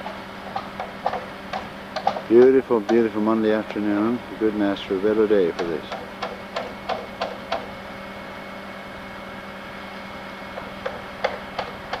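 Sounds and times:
steady low hum: 0.0 - 12.0
hammer striking timber: 0.5 - 3.0, 5.6 - 7.7.

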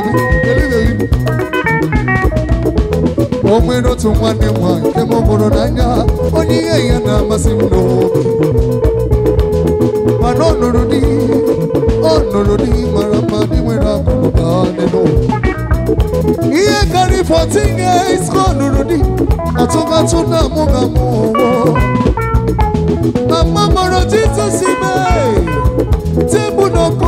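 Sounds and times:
person singing into microphone: 0.0 - 1.5, 3.3 - 8.7, 10.1 - 15.6, 16.4 - 22.2, 23.2 - 27.0
drum kit beat: 0.0 - 27.0
electric guitars: 0.0 - 27.0.

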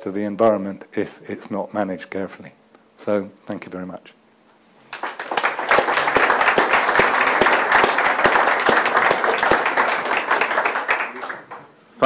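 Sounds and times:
audience applauding: 4.9 - 11.8.

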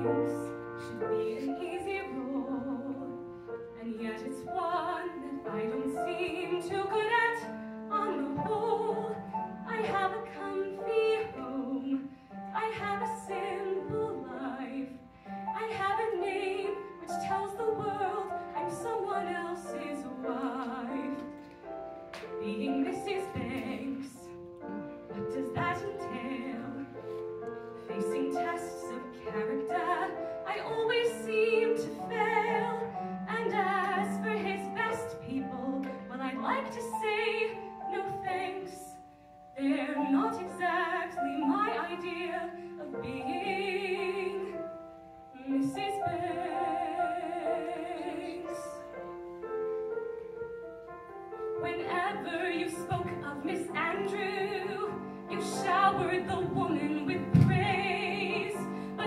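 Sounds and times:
piano accompaniment: 0.0 - 59.0
woman singing into microphone: 3.8 - 21.3, 22.4 - 24.3, 25.1 - 26.9, 27.9 - 39.0, 39.6 - 44.6, 51.6 - 59.0.

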